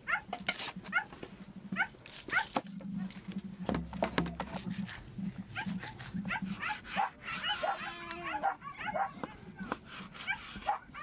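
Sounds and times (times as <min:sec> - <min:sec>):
dog whining and yelping: 0:00.1 - 0:00.3, 0:05.5 - 0:11.0.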